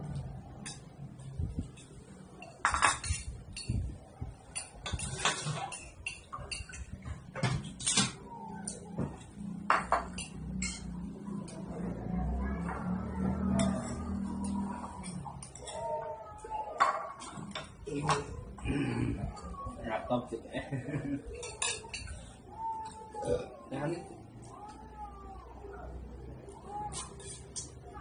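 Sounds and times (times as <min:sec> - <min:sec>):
cutlery clinking against dishes: 0:00.6 - 0:01.0, 0:01.6 - 0:11.6, 0:13.4 - 0:16.0, 0:16.7 - 0:18.6, 0:21.4 - 0:23.0, 0:26.9 - 0:27.8.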